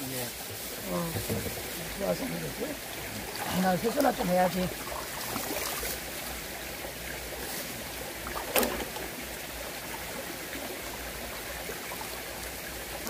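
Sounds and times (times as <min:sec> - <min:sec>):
stream running over stones: 0:00.0 - 0:13.0
hands splashing water: 0:03.2 - 0:06.0, 0:08.2 - 0:09.1.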